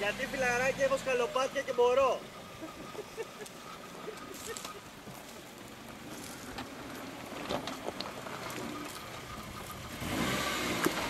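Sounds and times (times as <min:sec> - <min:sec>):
vehicle engine running low: 0:00.0 - 0:11.0
tyres crunching over stones: 0:03.4 - 0:11.0.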